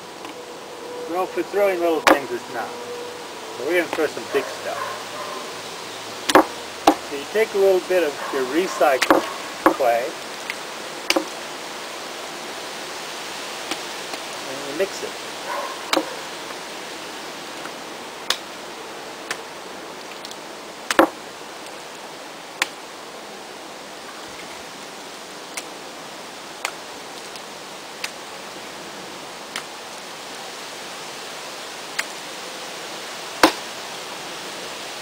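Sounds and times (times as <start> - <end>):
steady hiss: 0.0 - 35.0
clay slapped down by hand: 6.3 - 7.0, 11.1 - 11.4, 20.9 - 21.2, 33.4 - 33.6.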